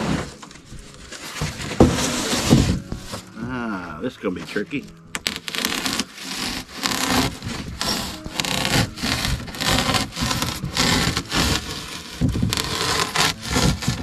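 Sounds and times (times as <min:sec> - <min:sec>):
knife sawing through foam board: 0:01.3 - 0:03.2, 0:05.2 - 0:14.0.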